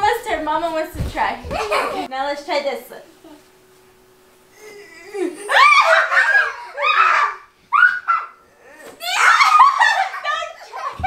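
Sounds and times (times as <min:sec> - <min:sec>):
woman and children laughing: 0:04.7 - 0:07.3, 0:09.1 - 0:11.0.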